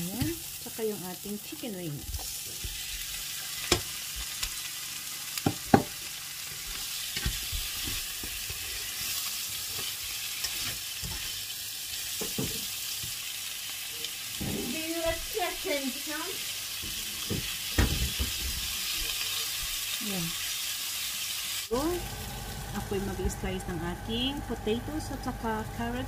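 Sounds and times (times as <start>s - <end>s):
food sizzling in frying pan: 0.0s - 25.4s
utensils knocking on pan: 5.4s - 6.0s.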